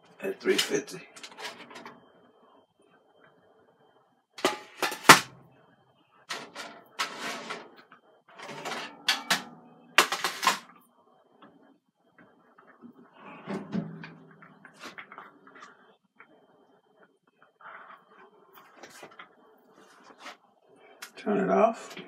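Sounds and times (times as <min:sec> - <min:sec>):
dishes clattering and scraping: 0:04.4 - 0:05.3, 0:06.3 - 0:07.8, 0:08.4 - 0:10.7.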